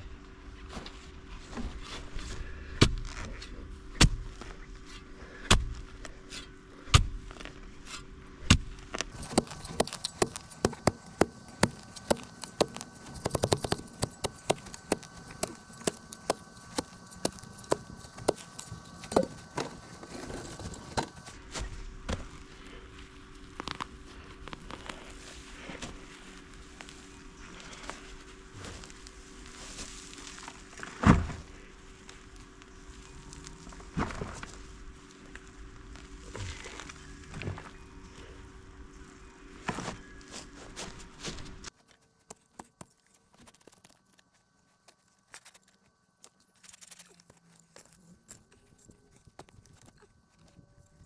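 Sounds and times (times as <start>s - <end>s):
faint steady hum: 0.0s - 51.0s
sharp knocks and clicks: 9.2s - 19.7s.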